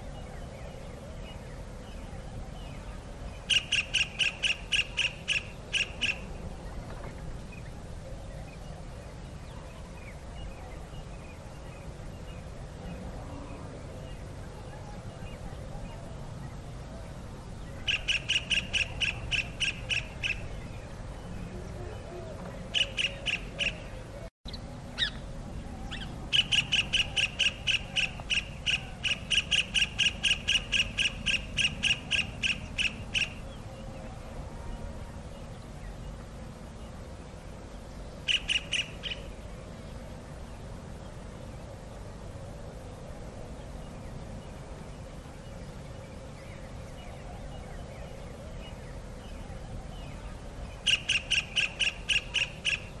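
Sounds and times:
kingfisher piping calls: 0:03.4 - 0:06.3, 0:17.8 - 0:20.5, 0:22.7 - 0:23.9, 0:25.9 - 0:33.4, 0:38.2 - 0:39.3, 0:50.8 - 0:53.0.

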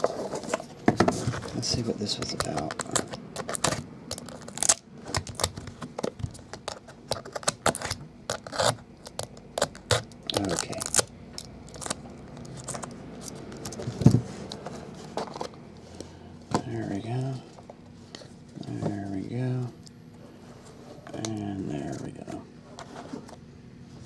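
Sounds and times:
knife scraping tape on cardboard: 0:07.2 - 0:08.8.

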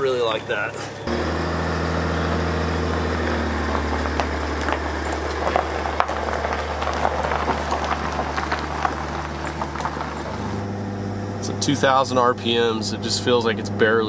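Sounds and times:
diesel truck engine humming: 0:00.0 - 0:14.0
tyres crackling over leaves and twigs: 0:02.2 - 0:10.6.

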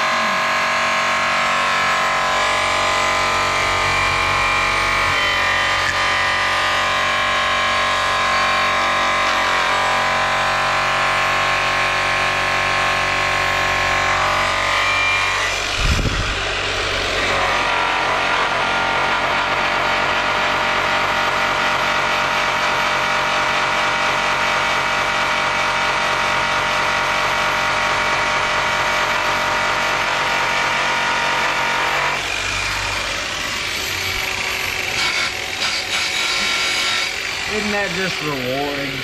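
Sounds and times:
polisher motor whining: 0:00.0 - 0:12.4, 0:13.0 - 0:20.3, 0:29.0 - 0:39.0.

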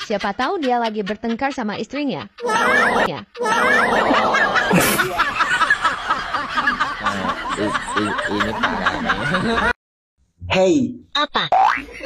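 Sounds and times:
people laughing: 0:02.4 - 0:09.8.

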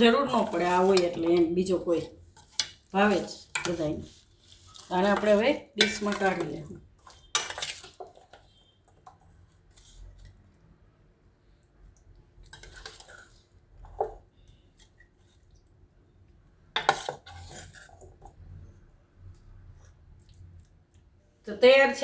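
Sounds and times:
spoon scraping metal bowl: 0:00.0 - 0:10.3, 0:12.5 - 0:15.0, 0:16.8 - 0:18.4.

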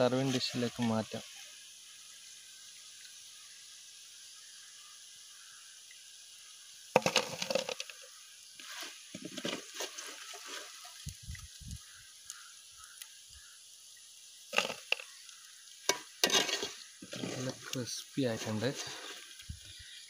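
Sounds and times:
strainer and spoon scraping a pot: 0:15.9 - 0:19.3.

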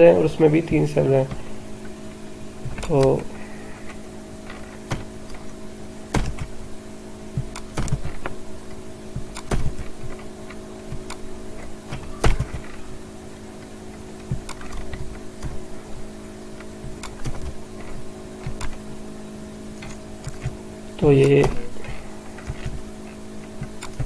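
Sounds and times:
keyboard keystrokes: 0:06.1 - 0:06.6, 0:07.4 - 0:08.3, 0:09.2 - 0:12.7, 0:16.9 - 0:18.8, 0:19.8 - 0:20.6, 0:23.4 - 0:24.0.

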